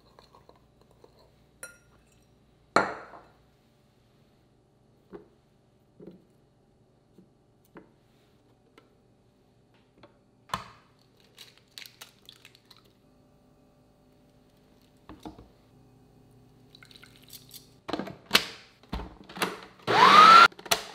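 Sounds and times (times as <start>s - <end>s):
egg cracking: 10.9s - 13.0s.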